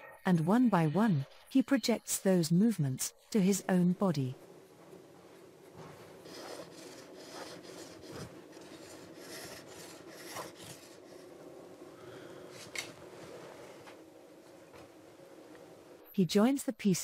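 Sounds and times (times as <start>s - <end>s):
blade scraping bamboo: 6.2s - 11.3s.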